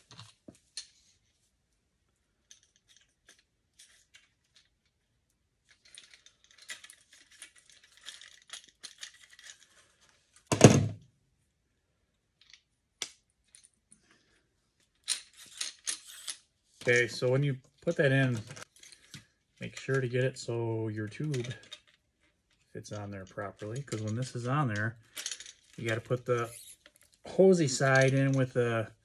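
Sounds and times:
rustling and rattling: 2.3s - 10.9s, 13.4s - 20.0s, 21.2s - 28.6s.

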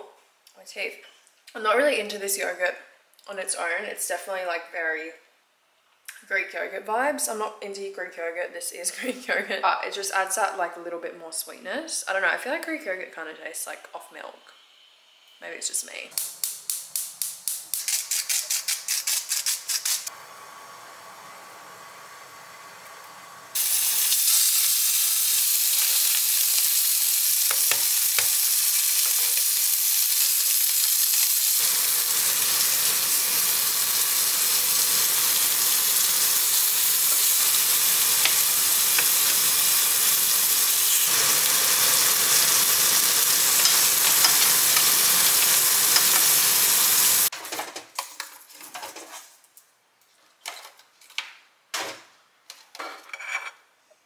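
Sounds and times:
steaks sizzling in frying pan: 23.6s - 47.3s.

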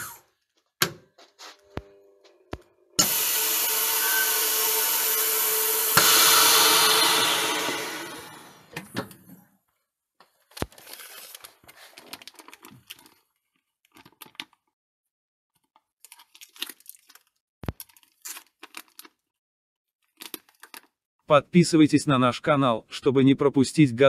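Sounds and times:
vacuum packer machine noise: 2.2s - 9.0s
plastic bag crinkling: 10.3s - 14.7s, 15.7s - 19.3s, 20.0s - 21.0s.

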